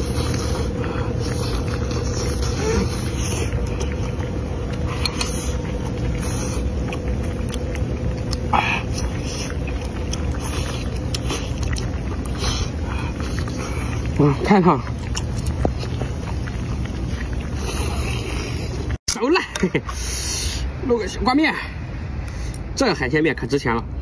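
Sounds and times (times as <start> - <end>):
man slurping and chewing: 0.0 - 19.0
faint steady hum: 0.0 - 24.0
low mechanical rumble: 0.0 - 24.0.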